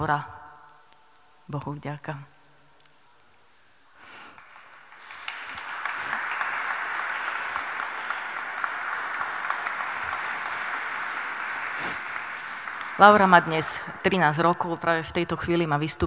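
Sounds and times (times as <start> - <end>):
audience applauding: 4.2 - 14.8.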